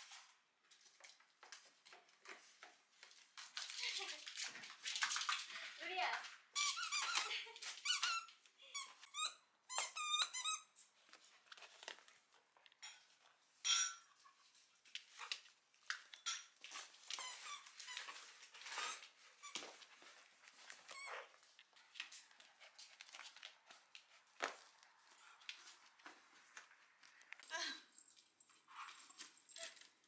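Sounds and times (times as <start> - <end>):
squeaky dog toy squeaking: 6.6 - 10.8, 20.8 - 21.4.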